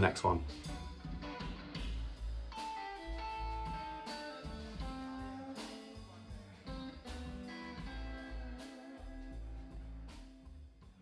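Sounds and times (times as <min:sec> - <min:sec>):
guitar music: 0:00.0 - 0:10.9
steady bass beat: 0:00.1 - 0:11.0.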